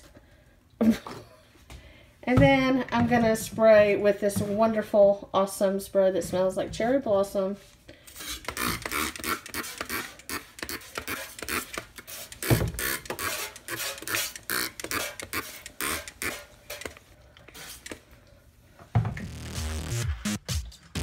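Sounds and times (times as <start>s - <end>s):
spray bottle squirts hissing: 8.3s - 16.4s
music: 19.1s - 21.0s.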